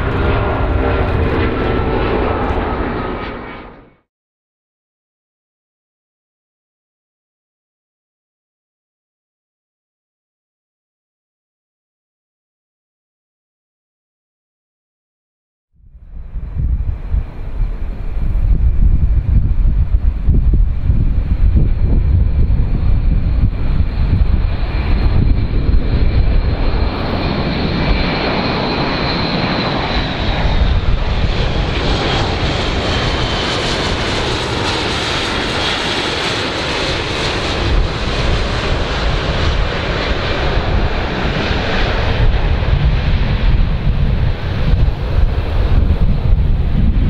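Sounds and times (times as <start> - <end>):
wind rumble on microphone: 0.0 - 3.9, 15.8 - 47.0
turboprop aircraft droning past: 0.0 - 4.1, 15.8 - 47.0.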